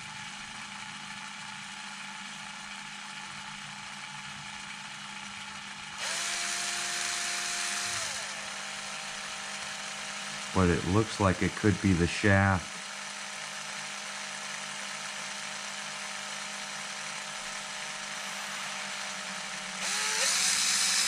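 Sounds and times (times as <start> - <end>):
cordless drill whining: 6.0 - 10.5, 12.8 - 21.0.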